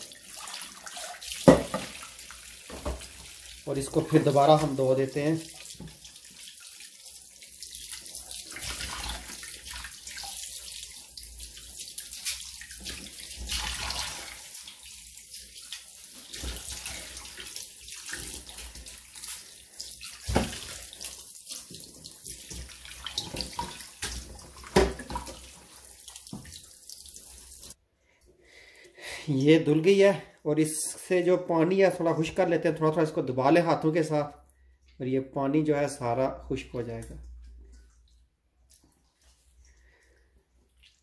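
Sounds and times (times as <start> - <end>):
hands rinsing fish splashing: 0.0 - 27.8, 37.3 - 41.0
tap water running: 0.0 - 27.8.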